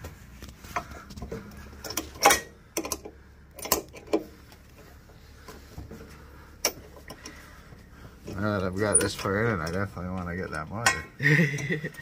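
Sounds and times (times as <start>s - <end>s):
wrench clinking on metal bolt: 1.9s - 4.2s.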